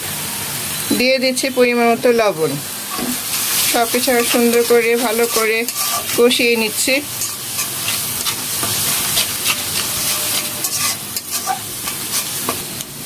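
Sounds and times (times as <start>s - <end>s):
masala sizzling in oil: 0.0s - 13.0s
spatula scraping pan: 2.9s - 12.7s.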